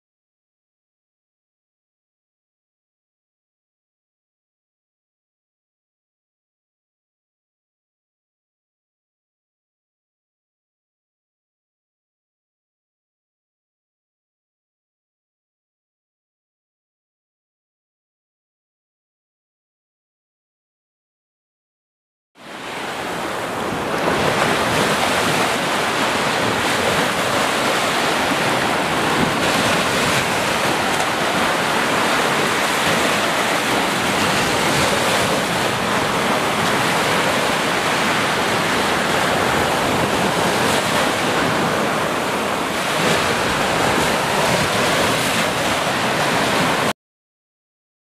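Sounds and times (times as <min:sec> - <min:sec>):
waves washing up beach: 0:22.4 - 0:46.9.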